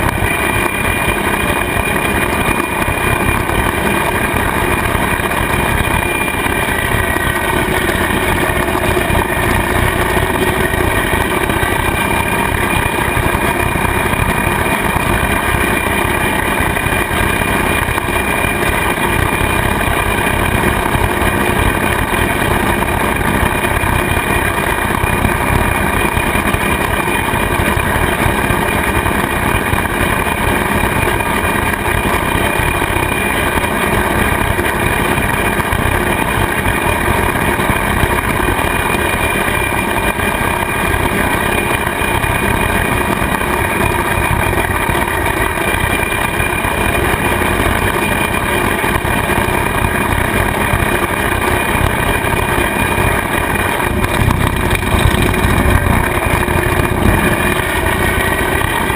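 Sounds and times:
tractor engine and cutter blade: 0.0s - 58.9s.

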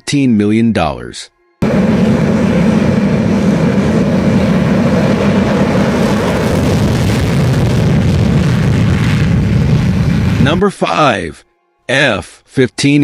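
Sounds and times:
jet engines running: 1.6s - 10.6s.

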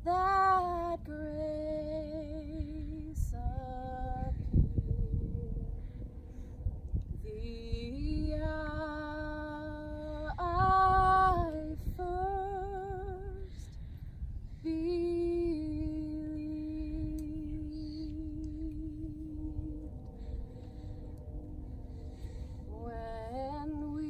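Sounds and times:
woman singing unaccompanied: 0.0s - 5.6s, 7.2s - 13.6s, 14.6s - 19.8s, 22.7s - 24.0s.

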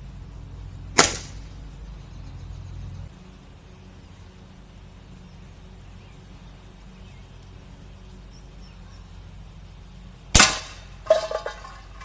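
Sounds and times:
pellet hitting metal target: 1.0s - 1.4s, 10.3s - 12.0s
air rifle shot crack: 1.0s - 1.5s, 10.3s - 10.9s.

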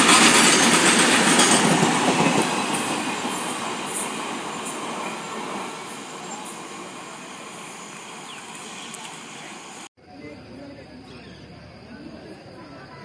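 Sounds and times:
freight train wheels clattering: 0.0s - 6.5s.

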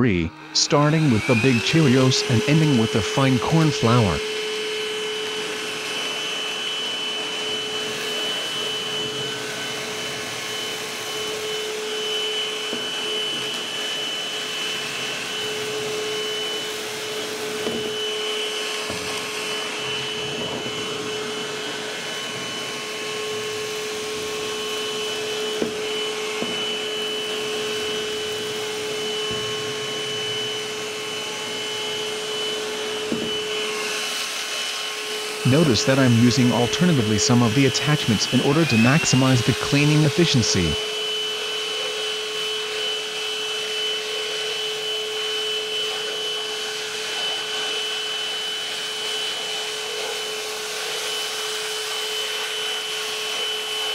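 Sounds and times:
handheld vacuum cleaner whining: 0.0s - 53.9s.

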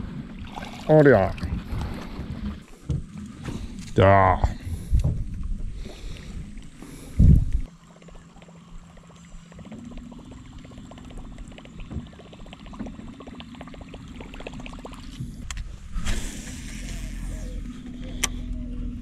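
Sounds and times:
fishing rod whoosh: 15.7s - 17.6s
electric boat motor humming: 16.3s - 19.0s.

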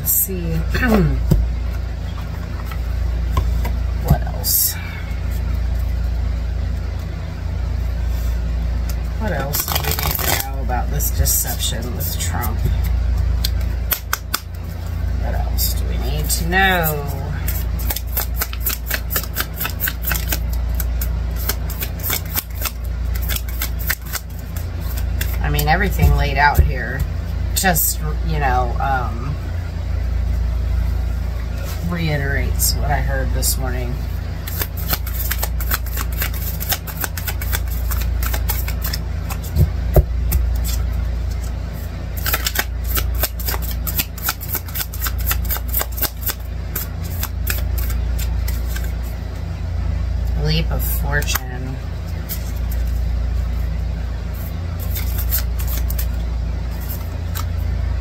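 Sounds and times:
steady low hum: 0.0s - 58.0s
cards being shuffled by hand: 8.8s - 15.0s, 16.1s - 27.1s, 34.0s - 49.2s, 52.0s - 53.6s, 54.4s - 57.7s.

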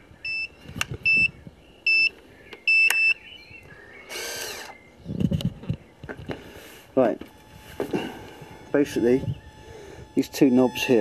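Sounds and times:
sharp switch clicks: 2.5s - 3.2s
radio transmitter beeping: 7.2s - 11.0s.

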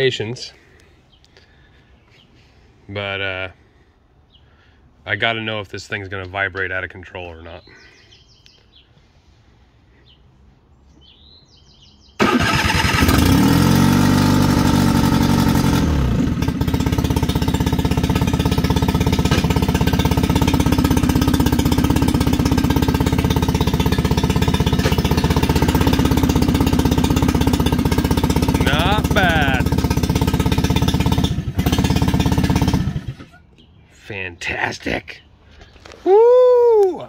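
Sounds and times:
outboard motor running: 12.2s - 33.3s.

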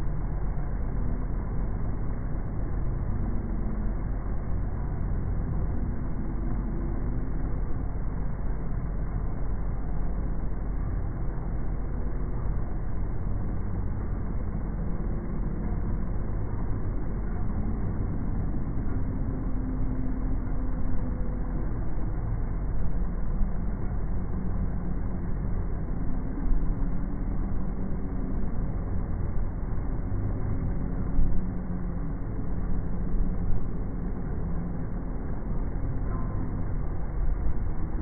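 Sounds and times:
deep steady rumble: 0.0s - 38.0s.

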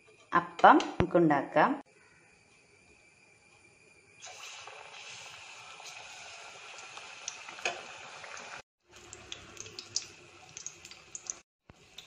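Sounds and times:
batter sizzling in hot oil: 4.2s - 12.0s.

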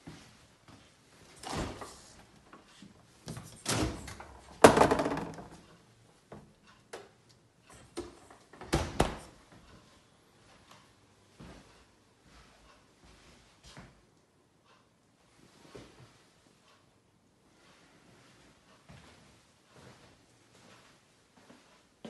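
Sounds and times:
fridge doors knocking and thudding: 3.6s - 5.6s, 8.0s - 9.3s.

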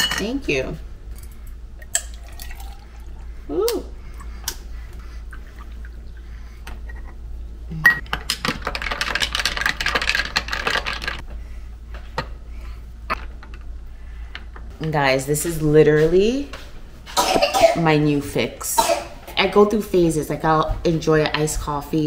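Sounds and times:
liquid pouring into a glass: 1.8s - 3.2s.

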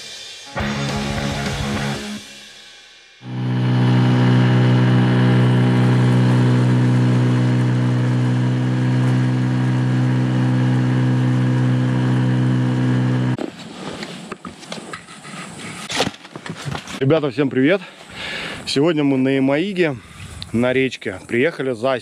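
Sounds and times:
outboard motor running: 3.2s - 13.4s.

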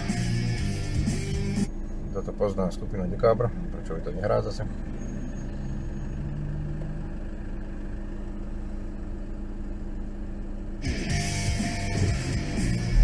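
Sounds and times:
rock music with electric guitar: 0.0s - 1.8s, 10.8s - 13.0s
car engine idling: 0.0s - 13.0s.

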